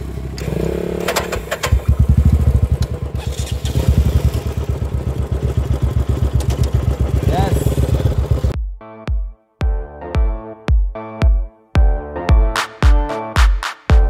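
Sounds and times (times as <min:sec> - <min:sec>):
motorcycle engine starting and idling: 0:00.0 - 0:08.6
ignition clicks: 0:02.7 - 0:03.4, 0:06.2 - 0:06.8.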